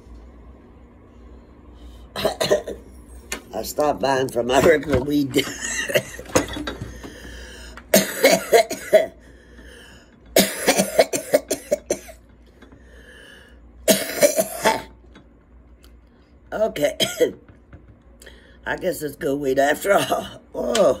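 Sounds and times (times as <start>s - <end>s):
woman coughing hard: 2.2s - 2.8s, 5.3s - 6.8s, 7.9s - 9.2s, 10.4s - 12.2s, 13.9s - 15.0s, 16.9s - 17.4s, 19.9s - 21.0s.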